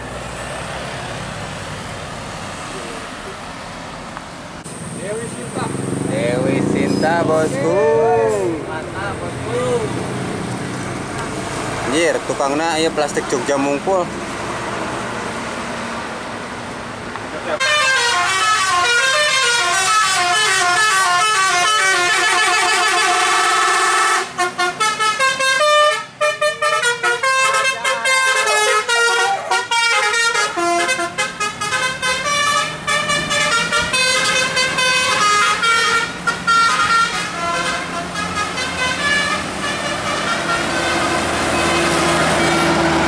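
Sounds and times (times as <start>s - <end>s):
traffic noise: 0.0s - 43.0s
musical bus horn melody: 17.6s - 43.0s.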